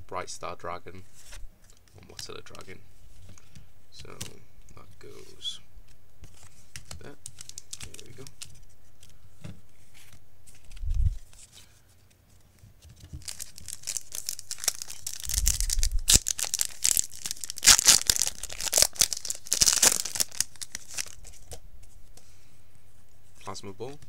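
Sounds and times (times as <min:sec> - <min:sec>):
foil wrapper tearing and crinkling: 0:07.2 - 0:08.5, 0:13.2 - 0:21.6.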